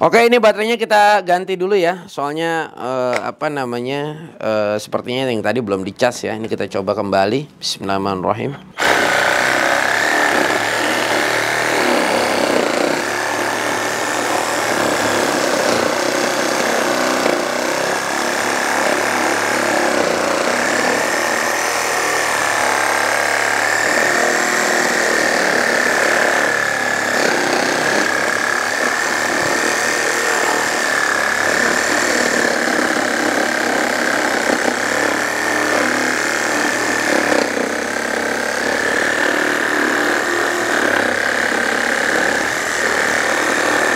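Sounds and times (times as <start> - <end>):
reciprocating saw cutting wood: 8.8 - 43.9.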